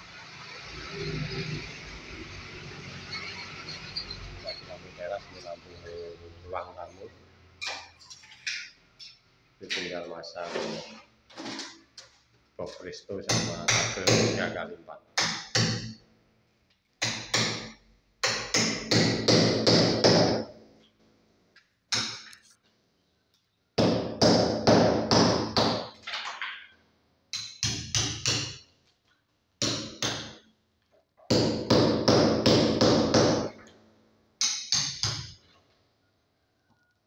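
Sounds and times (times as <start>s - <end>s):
hammer striking chisel: 13.3s - 14.6s, 15.2s - 16.0s, 17.0s - 20.5s, 21.9s - 22.4s, 23.8s - 26.0s, 27.3s - 28.6s, 29.6s - 30.4s, 31.3s - 33.7s, 34.4s - 35.4s.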